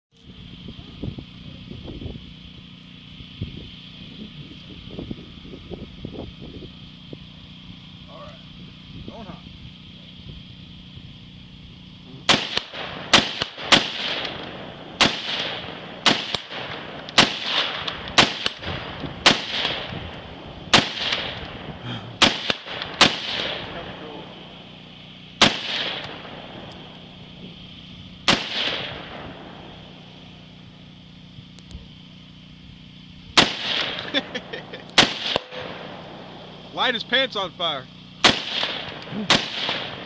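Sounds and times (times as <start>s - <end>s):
rifle single shots: 12.2s - 27.3s, 28.2s - 30.6s, 33.4s - 36.7s, 38.2s - 40.0s
rolling gunshot echo: 12.3s - 20.1s, 20.7s - 24.2s, 25.4s - 26.9s, 28.3s - 29.7s, 33.4s - 34.3s, 35.0s - 36.3s, 38.2s - 40.0s.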